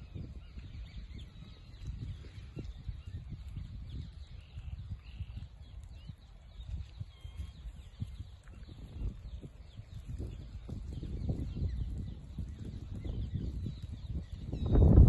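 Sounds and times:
small birds chirping: 0.0 - 15.0
wind rumbling on microphone: 0.0 - 15.0.

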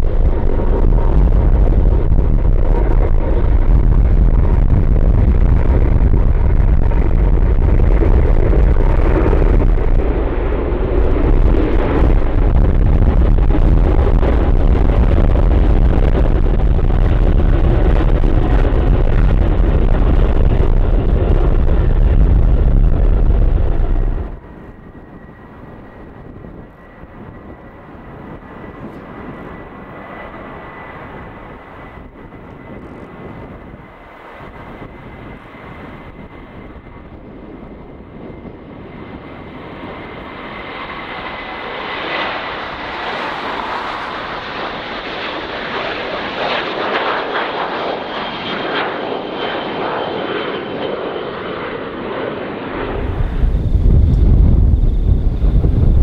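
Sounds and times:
high jet fan whine: 0.0 - 56.0
jet taking off: 0.0 - 56.0.

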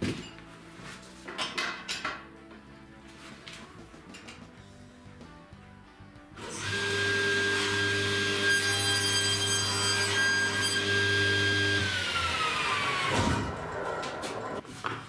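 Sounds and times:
table saw whining: 6.4 - 14.6.

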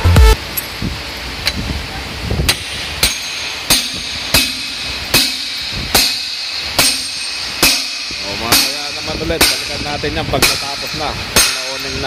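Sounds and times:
metal-on-metal hammer strikes: 2.5 - 12.0.

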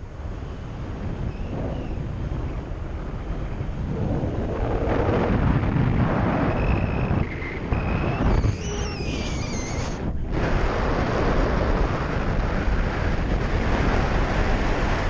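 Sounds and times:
wind buffeting microphone: 0.0 - 15.0
faint high whistle: 6.4 - 10.1.

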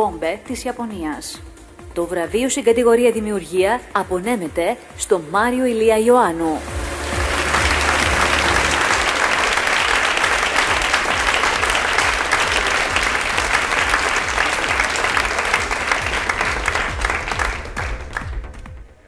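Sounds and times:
audience applauding: 6.7 - 18.9.

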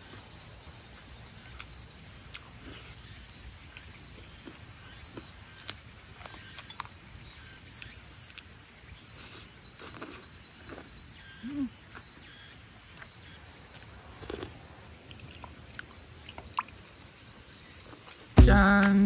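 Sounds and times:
faint insect ambience: 0.0 - 19.0
chewing: 1.5 - 7.0, 9.1 - 11.0, 13.0 - 17.2
person humming mm: 18.4 - 19.0.

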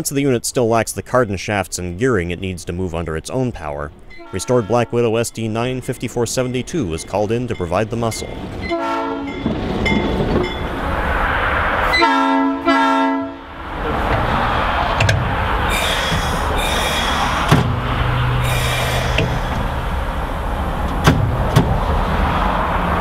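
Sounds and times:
locomotive running noise: 0.0 - 12.1, 13.4 - 23.0
locomotive air horn blasts: 4.1 - 5.1, 8.7 - 9.4, 11.9 - 13.5.

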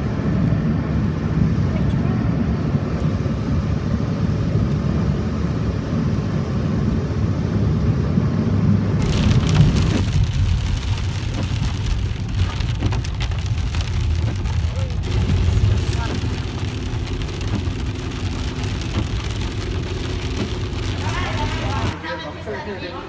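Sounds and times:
car road and engine rumble: 0.0 - 22.5
rain pattering on windshield: 9.0 - 22.0.

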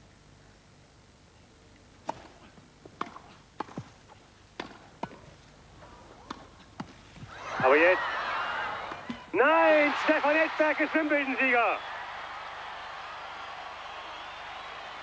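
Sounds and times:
tennis racket hits: 2.0 - 3.9
tennis ball bounces: 2.0 - 4.0, 4.6 - 5.3, 6.2 - 7.0.

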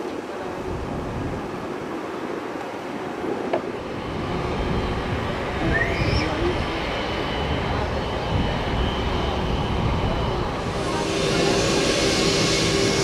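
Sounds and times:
high engine whine and hiss: 0.0 - 13.0
jet engines rumbling: 1.5 - 13.0
steady hum: 10.6 - 13.0.

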